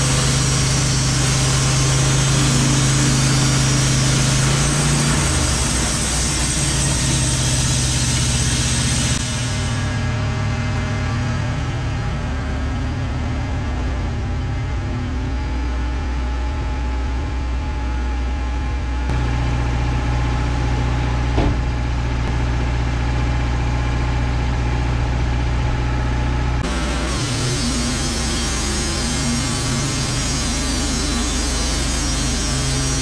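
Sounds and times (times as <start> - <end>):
sawmill engine running: 0.0 - 33.0
single knock: 21.4 - 21.7.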